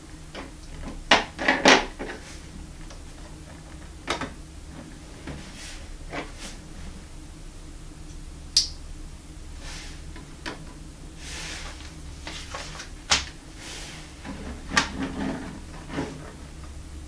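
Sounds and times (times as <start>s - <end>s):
scraping rustle: 4.6s - 7.1s, 11.2s - 16.7s.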